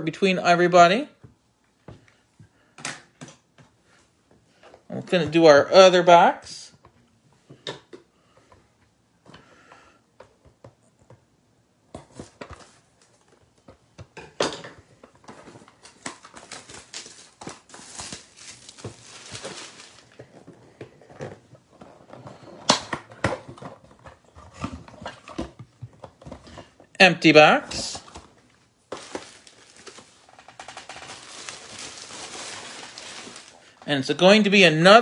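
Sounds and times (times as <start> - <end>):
cardboard and wrapping rustling: 11.9 - 13.7, 15.0 - 26.8, 27.6 - 33.8.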